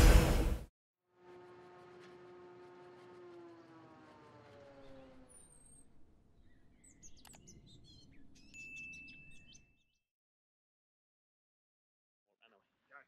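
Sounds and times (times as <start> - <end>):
falling tone: 1.2 - 6.0.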